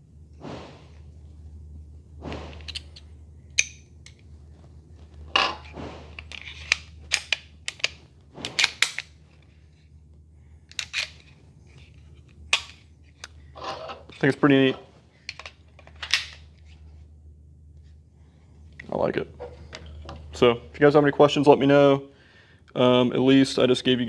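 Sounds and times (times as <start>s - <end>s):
metal sliding scrapes: 0.3s - 1.1s, 13.5s - 14.9s
pistol metallic clicks and snaps: 2.6s - 4.3s, 6.2s - 8.0s, 8.6s - 9.2s.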